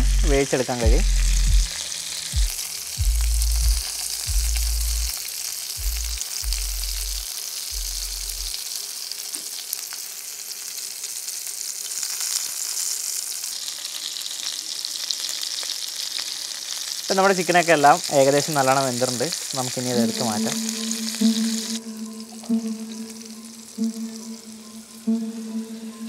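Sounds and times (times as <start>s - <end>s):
chicken sizzling in a pan: 0.0s - 25.0s
low rumbling thuds: 1.0s - 1.7s, 2.4s - 5.0s, 5.8s - 6.6s.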